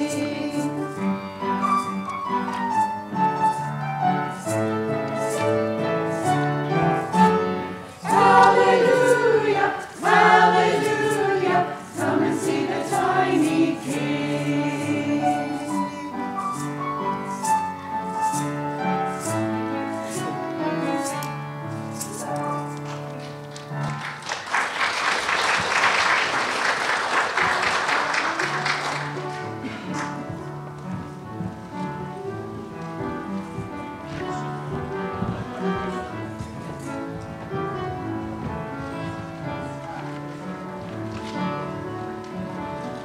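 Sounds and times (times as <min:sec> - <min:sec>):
choir singing: 0:00.0 - 0:01.0, 0:07.9 - 0:16.3
piano accompaniment: 0:00.0 - 0:43.0.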